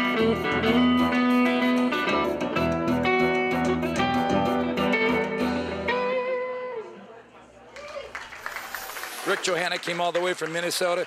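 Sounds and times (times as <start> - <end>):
bass line: 0.0 - 6.3
guitar music: 0.0 - 7.1.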